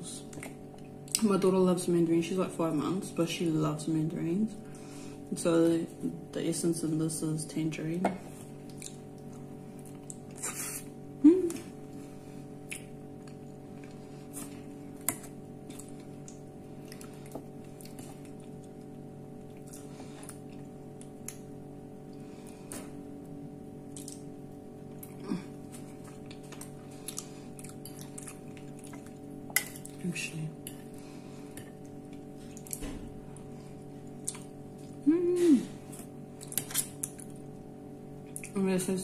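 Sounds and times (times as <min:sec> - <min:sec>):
wet eating sounds: 0:08.3 - 0:38.6
person eating mouth noises: 0:10.0 - 0:11.7
person humming mmm: 0:10.4 - 0:11.8, 0:25.1 - 0:25.7, 0:35.0 - 0:36.0.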